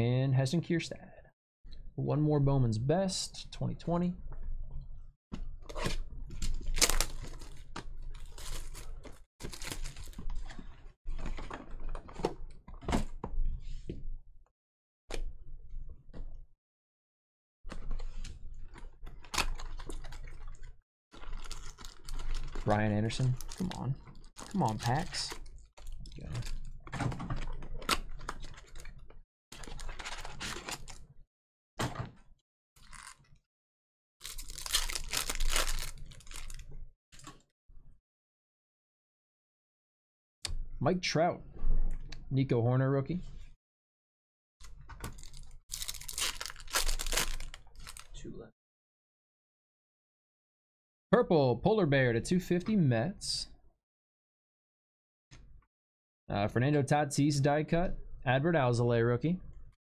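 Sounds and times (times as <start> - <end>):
foil wrapper crinkling and tearing: 6.6 - 7.6, 8.2 - 10.2, 21.2 - 22.7, 23.3 - 23.8, 32.8 - 33.3, 34.2 - 36.6, 45.1 - 48.2.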